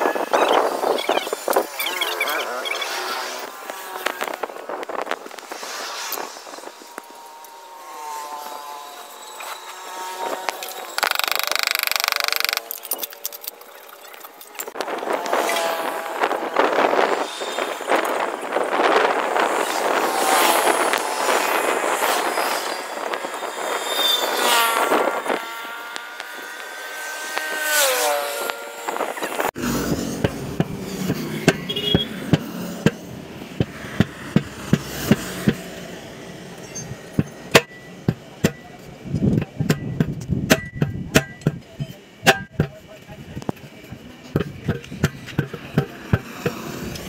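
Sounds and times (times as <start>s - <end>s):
rushing noise with falling tone: 0.0s - 31.6s
tyre tool striking steel rim: 37.2s - 38.7s, 39.4s - 42.8s.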